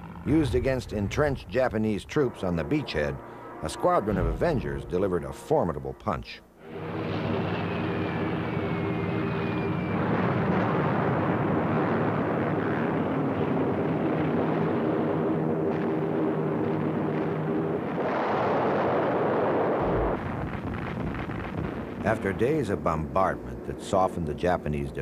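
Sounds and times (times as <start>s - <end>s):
propeller warplanes droning: 0.0s - 25.0s
rumble of bomb bursts: 0.2s - 5.4s, 6.7s - 23.7s
falling whistle: 7.4s - 10.4s.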